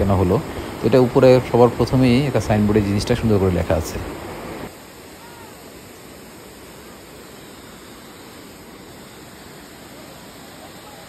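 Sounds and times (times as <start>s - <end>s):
waterfall rushing over rocks: 0.0s - 11.0s.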